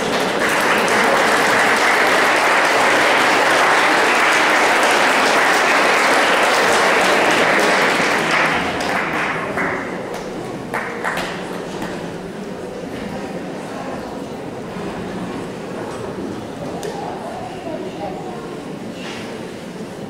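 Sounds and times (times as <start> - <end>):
audience applause: 0.0 - 11.9.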